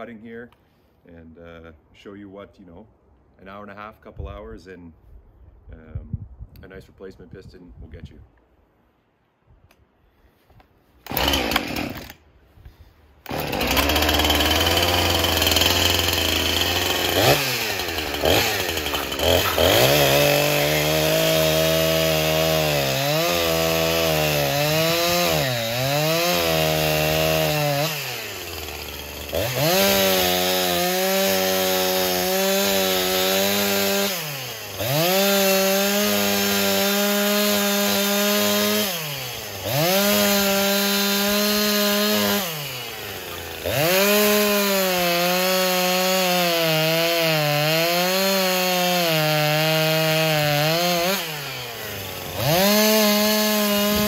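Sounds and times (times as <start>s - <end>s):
chainsaw cutting wood at high revs: 11.0s - 12.3s, 13.2s - 54.0s
chainsaw starting and idling: 11.0s - 12.3s, 13.2s - 54.0s.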